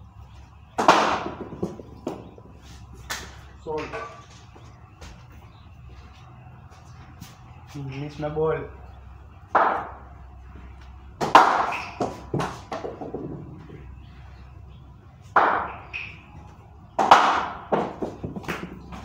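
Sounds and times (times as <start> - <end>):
ball bouncing on tiled floor: 11.2 - 13.7, 17.7 - 19.0.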